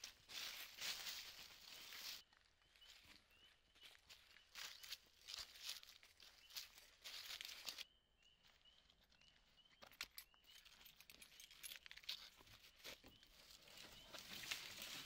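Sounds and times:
footsteps in dry leaves: 0.0s - 7.9s, 12.5s - 15.0s
bird chirping: 0.1s - 15.0s.

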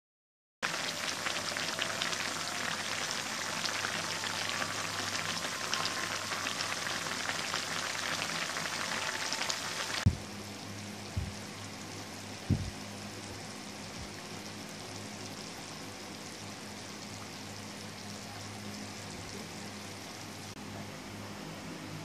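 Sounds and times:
bubbling crackle of boiling sauce: 0.6s - 20.5s
quiet hiss: 8.6s - 22.0s
short thump: 12.5s - 12.7s.

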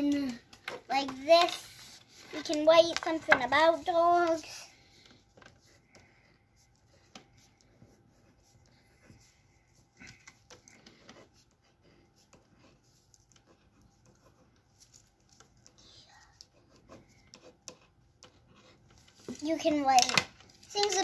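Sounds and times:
pen writing on paper: 16.4s - 18.8s.

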